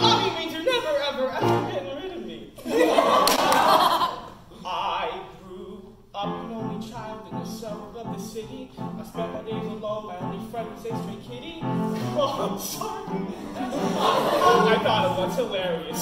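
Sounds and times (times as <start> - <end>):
man singing with vibrato: 0.0 - 1.7, 4.6 - 16.0
accompaniment chords: 6.2 - 16.0.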